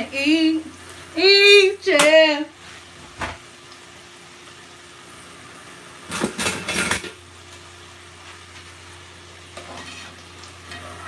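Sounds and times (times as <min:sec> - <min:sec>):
kitchenware clattering: 0:06.1 - 0:07.2.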